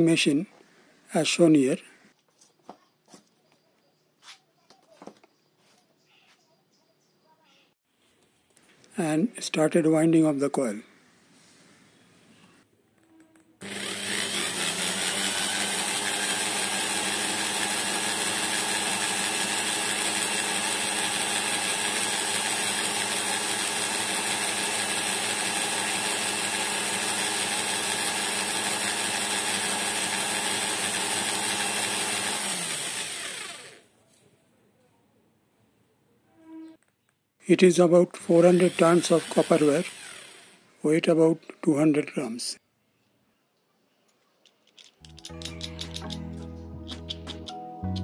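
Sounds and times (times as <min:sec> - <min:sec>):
electric drill motor spinning: 0:13.6 - 0:33.9, 0:38.2 - 0:40.7.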